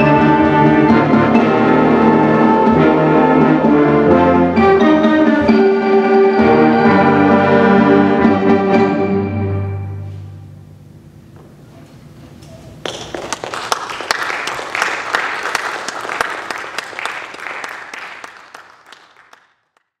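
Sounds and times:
audience applause: 12.9 - 19.9.

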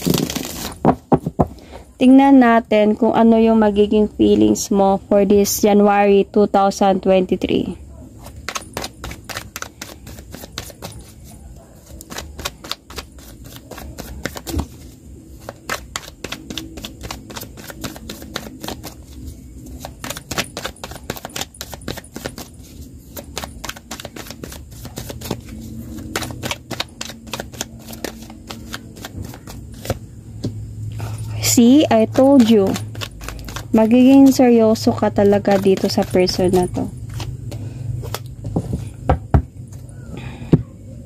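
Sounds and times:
cards being shuffled: 0.0 - 1.6, 8.2 - 30.5, 32.1 - 38.9.

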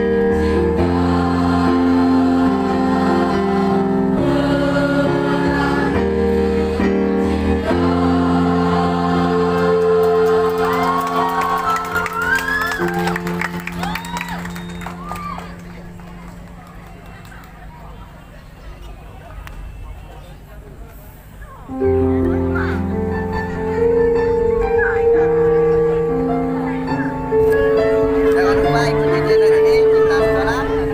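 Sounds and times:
children's choir singing: 0.0 - 12.9
audience whooping and cheering: 10.0 - 17.4.

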